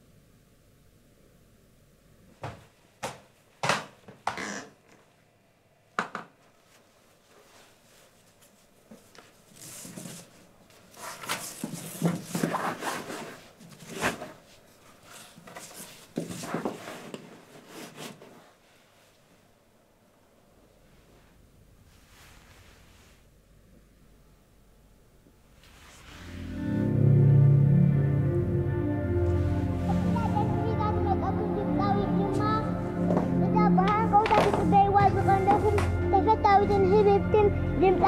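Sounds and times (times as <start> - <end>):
knocks and thumps on wooden floor: 2.4 - 4.5
rope and clothing rustling: 6.6 - 19.2.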